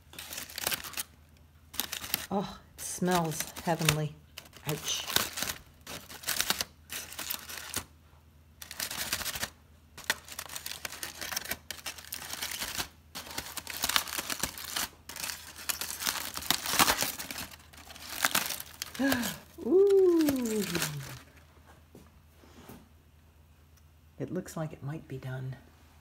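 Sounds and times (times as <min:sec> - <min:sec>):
aluminium foil crinkling: 0:00.0 - 0:07.9, 0:08.6 - 0:21.4.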